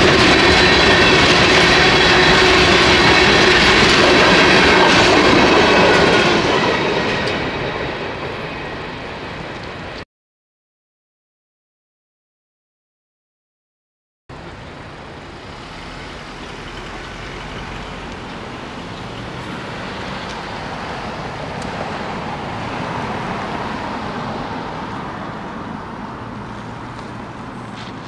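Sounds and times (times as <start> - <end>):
cars driving over railroad crossing: 0.0 - 8.4, 14.3 - 28.0.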